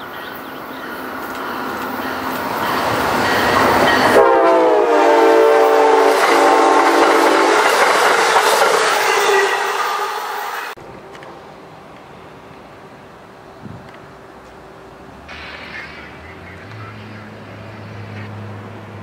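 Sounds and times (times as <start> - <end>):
train wheels rushing on rails: 0.0 - 19.0
train horn blast: 4.0 - 7.7.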